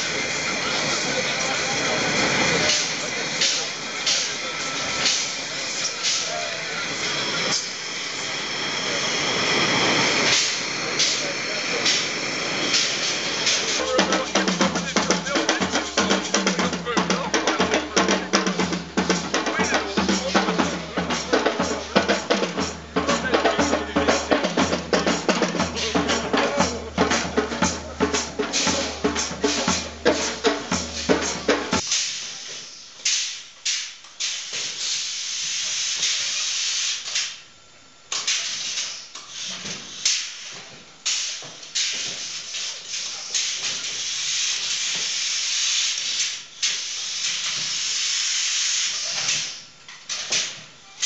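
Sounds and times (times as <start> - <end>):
robot hissing air bursts: 0.0 - 23.6, 28.1 - 37.4, 38.1 - 50.6
dance music with drum beat: 13.8 - 31.8.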